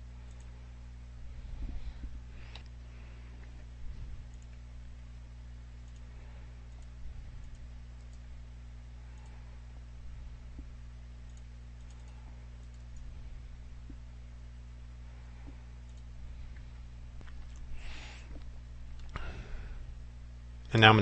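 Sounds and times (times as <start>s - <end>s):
low electrical hum: 0.0s - 21.0s
computer mouse clicks: 0.2s - 0.6s, 4.2s - 4.6s, 5.8s - 6.1s, 6.7s - 8.3s, 11.2s - 13.1s, 15.4s - 16.1s
keyboard typing: 4.2s - 4.6s, 11.2s - 13.1s.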